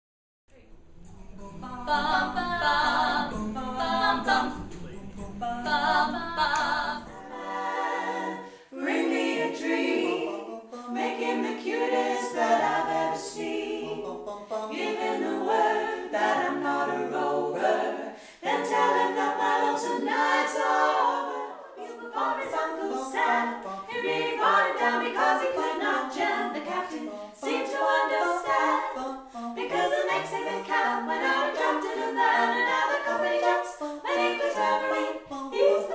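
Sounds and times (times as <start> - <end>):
women singing in close harmony: 1.4 - 35.9.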